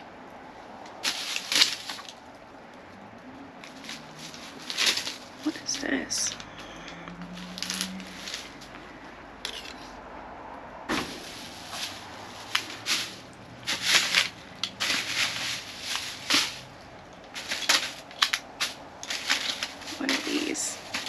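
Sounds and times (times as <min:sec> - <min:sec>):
plastic bags crinkling: 0:01.0 - 0:02.2, 0:03.6 - 0:08.8, 0:11.1 - 0:21.0.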